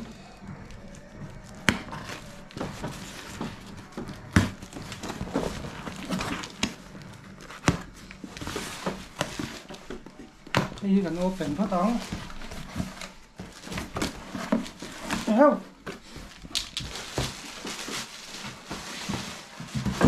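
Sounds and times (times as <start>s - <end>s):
cardboard flaps scraping and rustling: 0.0s - 20.0s.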